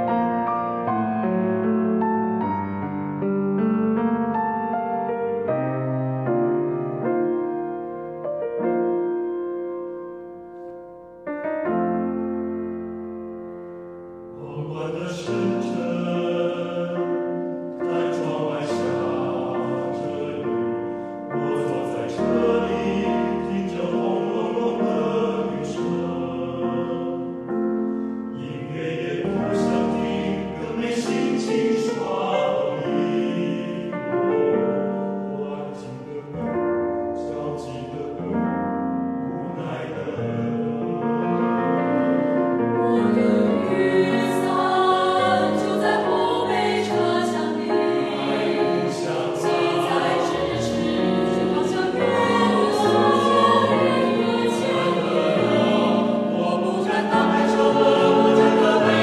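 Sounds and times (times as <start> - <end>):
piano accompaniment: 0.0 - 59.0
choir singing: 14.3 - 59.0.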